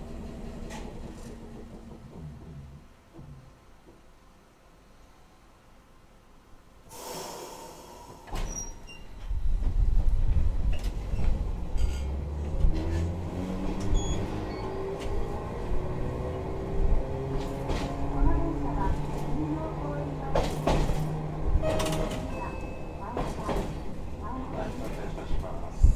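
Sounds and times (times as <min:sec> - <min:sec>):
tram wheels rumbling: 0:00.0 - 0:04.1, 0:07.6 - 0:25.9
short hiss: 0:06.9 - 0:08.6.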